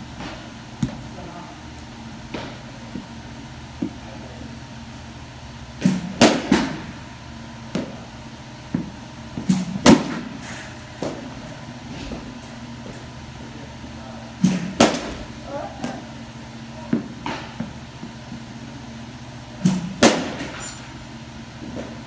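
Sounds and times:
steady low hum: 0:00.0 - 0:22.0
bat hitting softballs: 0:05.8 - 0:07.0, 0:14.5 - 0:16.0, 0:19.7 - 0:20.6.

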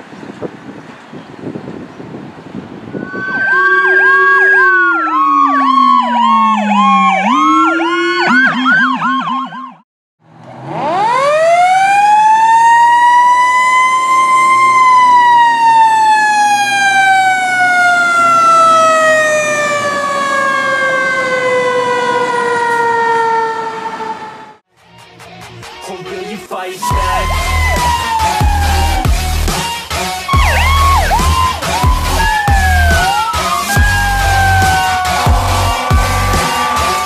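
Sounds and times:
electronic siren yelping: 0:02.9 - 0:09.8, 0:26.8 - 0:29.6, 0:30.3 - 0:37.0.

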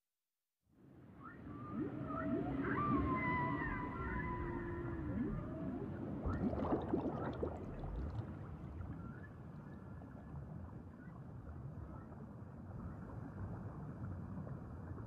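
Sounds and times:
low wash of water: 0:01.2 - 0:15.0
underwater bubbling: 0:01.6 - 0:10.3.

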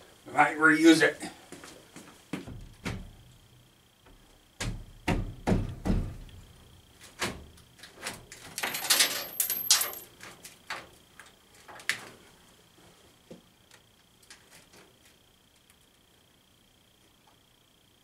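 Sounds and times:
dull thumps and knocks: 0:02.4 - 0:03.2, 0:04.1 - 0:06.3.

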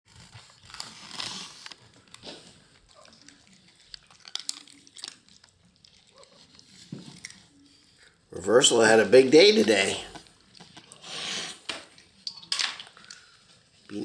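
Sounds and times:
cats crunching dry kibble: 0:00.1 - 0:08.1.

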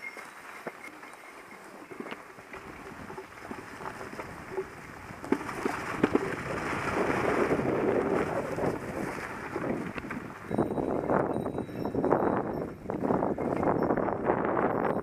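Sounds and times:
wind on microphone: 0:01.8 - 0:15.0
bike knocking and rattling: 0:09.5 - 0:15.0.

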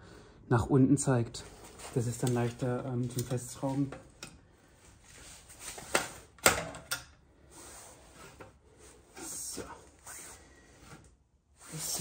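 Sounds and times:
metal clamp clicks and knocks: 0:06.4 - 0:07.2.

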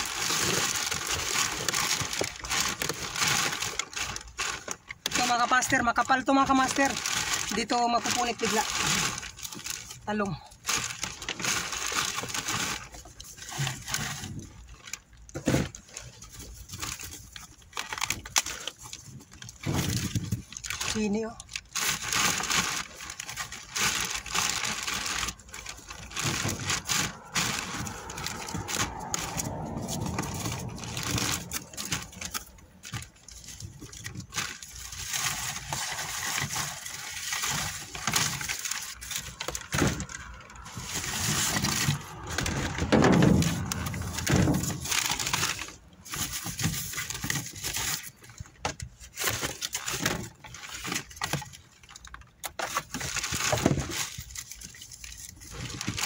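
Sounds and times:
cardboard rustling: 0:00.0 - 0:56.0
plastic bags crinkling: 0:00.0 - 0:56.0
knocks of crate and produce: 0:39.5 - 0:45.3.

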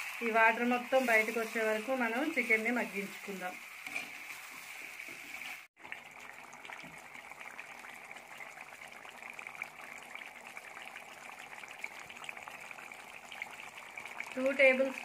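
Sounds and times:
chicken simmering with bubbling: 0:05.6 - 0:15.0.

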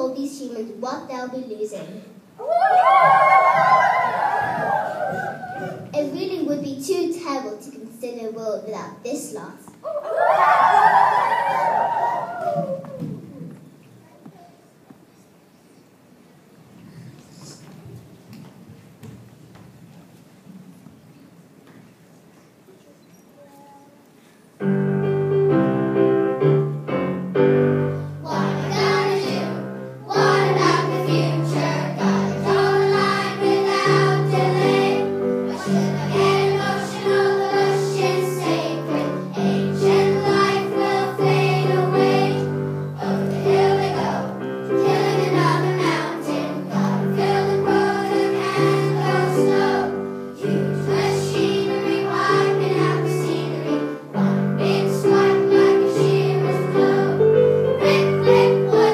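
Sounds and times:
children's choir singing: 0:02.4 - 0:06.0, 0:09.8 - 0:13.6, 0:27.8 - 0:58.9
piano accompaniment: 0:24.6 - 0:58.9.

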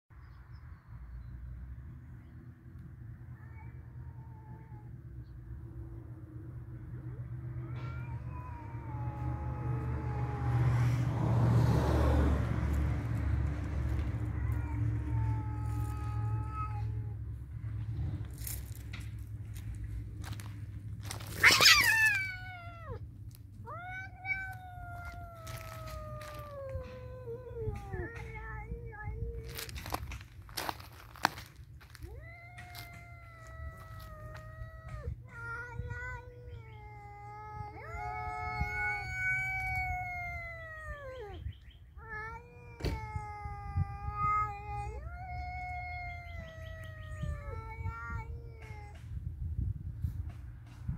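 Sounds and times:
cat yowling: 0:03.3 - 0:05.1, 0:06.9 - 0:17.4, 0:21.0 - 0:49.3
cat screeching: 0:07.1 - 0:12.4, 0:13.9 - 0:17.2, 0:21.1 - 0:49.0.

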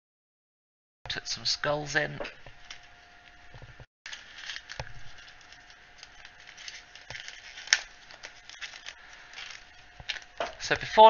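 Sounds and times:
plastic packet rustling: 0:04.1 - 0:10.8.

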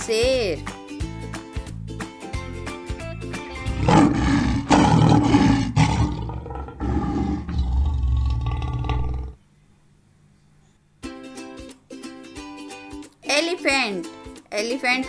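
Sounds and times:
plucked-string background music: 0:00.0 - 0:04.2, 0:11.0 - 0:15.0
lion roaring and grunting: 0:03.6 - 0:09.4.

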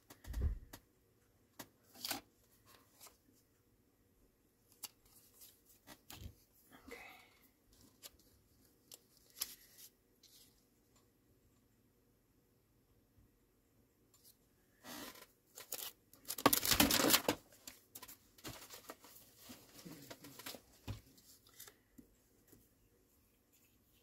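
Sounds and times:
paper rustling and crinkling: 0:14.9 - 0:22.6.

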